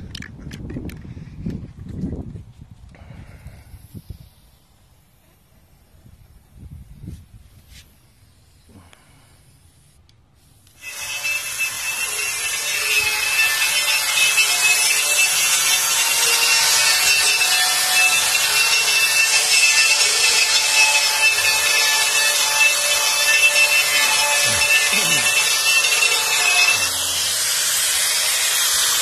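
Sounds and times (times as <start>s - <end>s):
angle grinder grinding metal: 10.7s - 29.0s.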